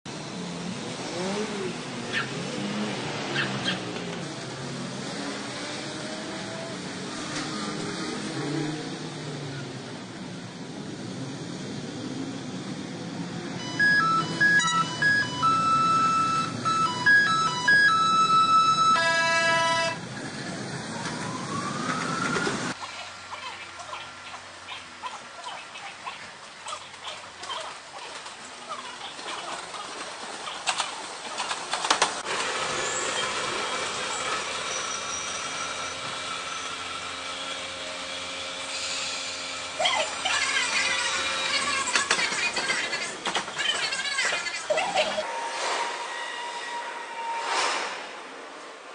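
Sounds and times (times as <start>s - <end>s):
low traffic rumble: 0.1s - 45.3s
electronic chime melody: 13.6s - 19.2s
train rolling over points: 31.6s - 39.6s.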